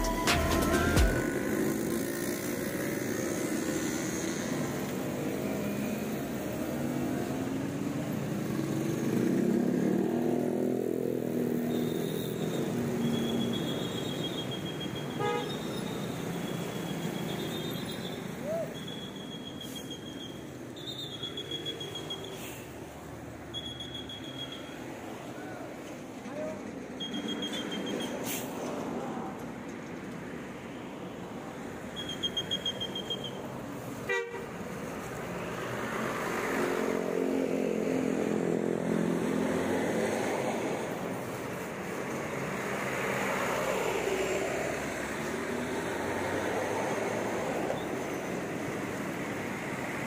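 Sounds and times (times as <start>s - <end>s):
faint high-pitched beeps: 23.5s - 24.8s.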